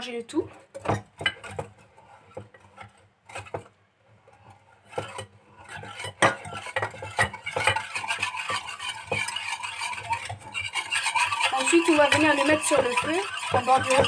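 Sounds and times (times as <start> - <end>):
wire whisk clinking in saucepan: 5.0 - 14.0.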